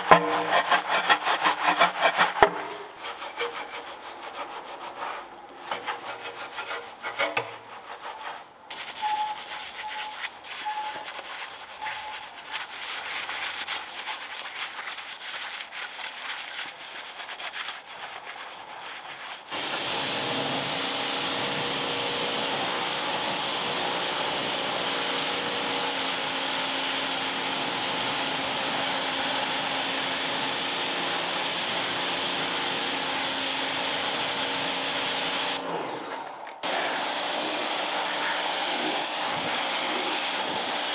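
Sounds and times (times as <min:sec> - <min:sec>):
stiff brush scrubbing upholstery: 0:03.0 - 0:35.6, 0:36.7 - 0:40.9
vacuum cleaner running: 0:19.5 - 0:40.9.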